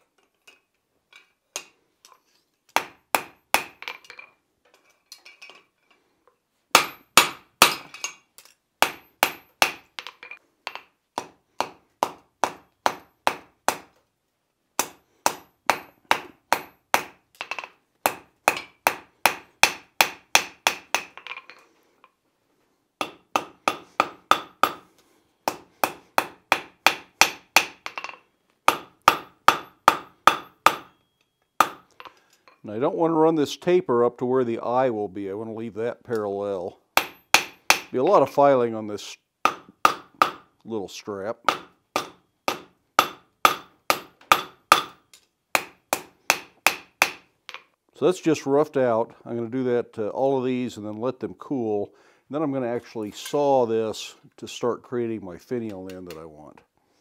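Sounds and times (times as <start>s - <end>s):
hammer striking hot steel on anvil: 2.8s - 3.8s, 6.8s - 8.2s, 8.8s - 9.9s, 10.7s - 13.9s, 14.8s - 17.2s, 18.1s - 21.2s, 23.0s - 24.9s, 25.5s - 31.9s, 37.0s - 37.9s, 39.5s - 40.5s, 41.5s - 45.0s, 45.6s - 47.2s
anvil ringing: 27.3s - 32.0s, 41.5s - 45.0s.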